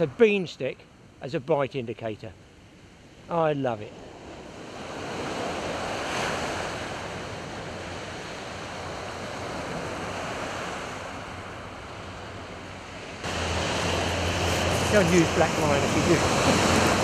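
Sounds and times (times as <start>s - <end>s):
waves washing onto beach: 4.0s - 17.0s.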